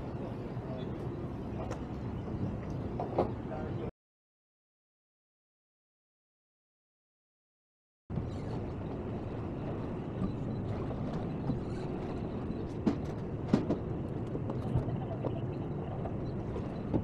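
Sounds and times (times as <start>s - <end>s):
boat motor rumble: 8.1s - 17.0s.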